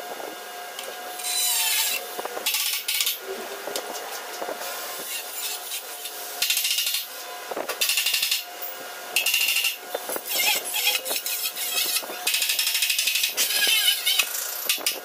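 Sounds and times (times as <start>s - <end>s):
tool scraping steel: 1.2s - 3.2s, 9.2s - 15.0s.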